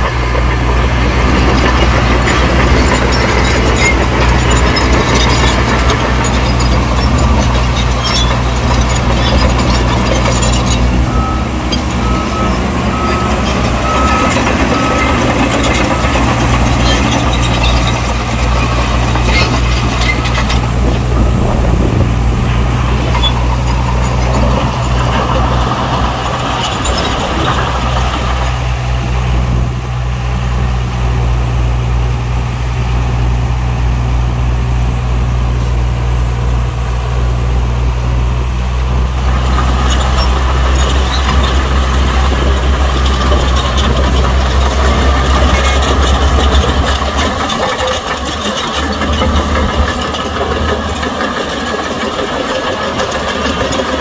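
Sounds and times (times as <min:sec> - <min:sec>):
diesel machinery engine drone: 0:00.0 - 0:54.0
reversing alarm beeping: 0:09.5 - 0:19.2.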